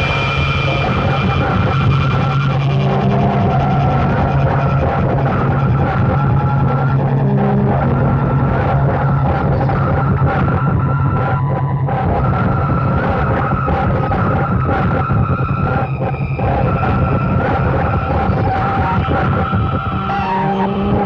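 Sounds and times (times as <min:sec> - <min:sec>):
harsh noise music: 0:00.0 - 0:21.0.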